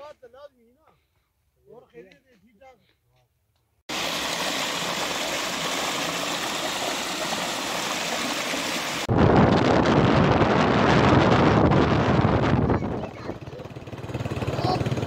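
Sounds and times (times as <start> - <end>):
water gushing from a pipe: 3.9 - 9.1.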